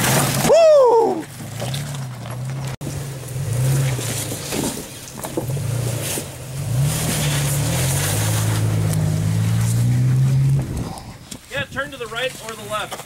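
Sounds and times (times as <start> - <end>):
truck engine revving in low gear: 1.4 - 11.1.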